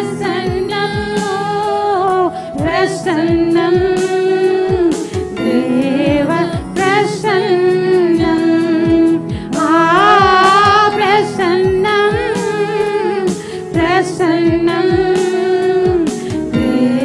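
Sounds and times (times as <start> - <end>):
backing music with drum beat: 0.0 - 17.0
woman singing into microphone: 0.0 - 17.0.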